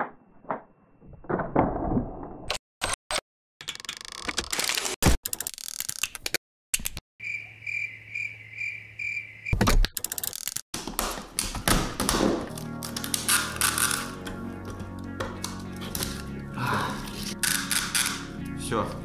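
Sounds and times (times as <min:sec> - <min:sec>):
background music: 0:11.0 - 0:19.0.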